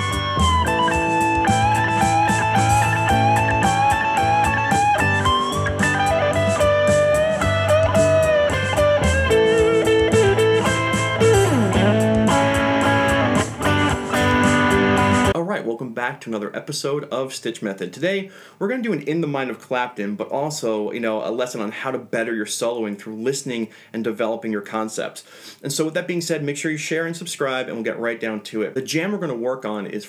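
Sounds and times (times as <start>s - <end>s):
bass and drums backing track: 0.0s - 15.4s
electric guitar lead solo: 0.0s - 15.4s.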